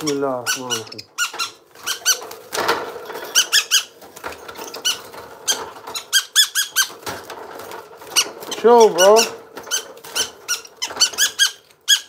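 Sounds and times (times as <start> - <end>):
parrot squeaky calls: 0.0 - 2.2, 8.8 - 12.0.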